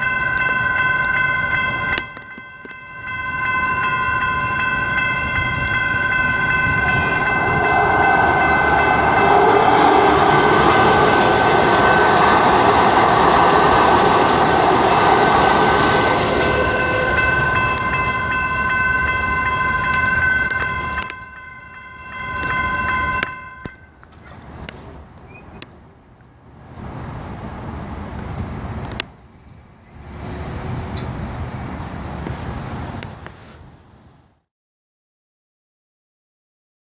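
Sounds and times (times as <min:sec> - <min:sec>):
railroad crossing bells ringing: 0:00.0 - 0:24.2
train rushing over rails: 0:00.0 - 0:25.6, 0:26.4 - 0:33.2.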